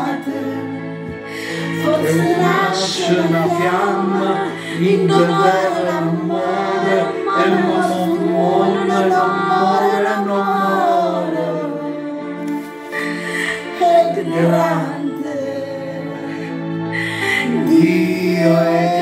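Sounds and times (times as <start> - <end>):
woman singing: 0.0 - 0.8, 1.6 - 12.4, 13.5 - 16.6
man singing: 1.8 - 11.6, 17.4 - 19.0.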